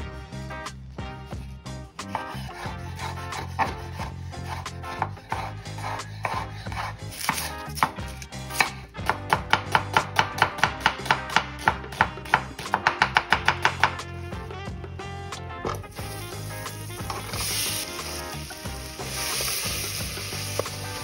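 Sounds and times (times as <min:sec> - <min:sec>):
knife chopping on wooden board: 0:02.0 - 0:14.0.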